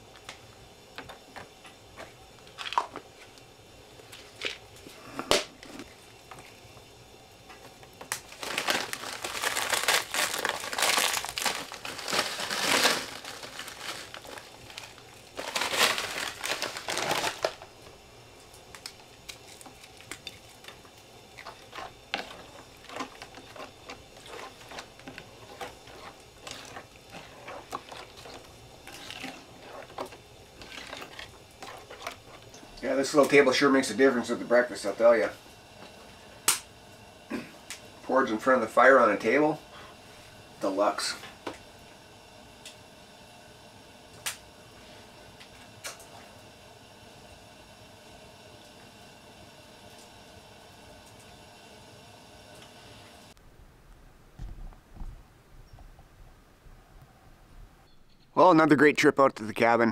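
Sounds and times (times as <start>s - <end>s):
plastic bag crinkling: 8.0s - 17.9s, 21.4s - 32.6s.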